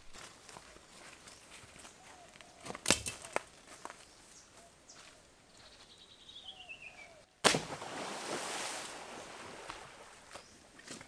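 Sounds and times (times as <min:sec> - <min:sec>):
loud crack: 0:07.4 - 0:07.9.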